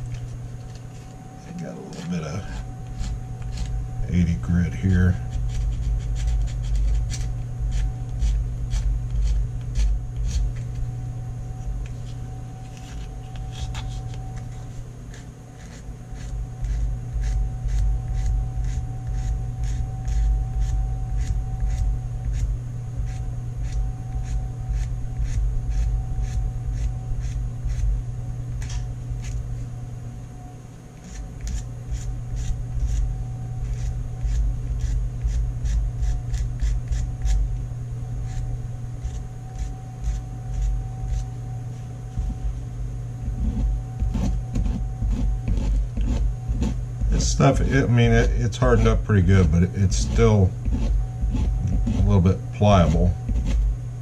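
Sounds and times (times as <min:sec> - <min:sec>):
sandpaper rubbing strokes: 0:05.3 - 0:10.8, 0:12.0 - 0:22.4, 0:31.0 - 0:37.4, 0:39.0 - 0:41.8, 0:43.3 - 0:48.0, 0:48.6 - 0:53.6.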